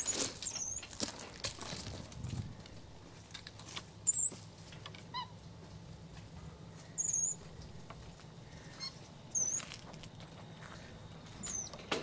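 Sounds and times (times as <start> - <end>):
monkeys squeaking: 0.0 - 0.9, 4.1 - 4.3, 7.0 - 7.4, 8.8 - 9.7, 11.4 - 11.8.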